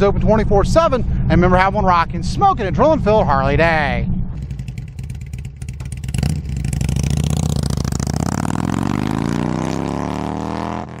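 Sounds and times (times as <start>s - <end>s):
motorcycle engine accelerating: 4.4s - 11.0s.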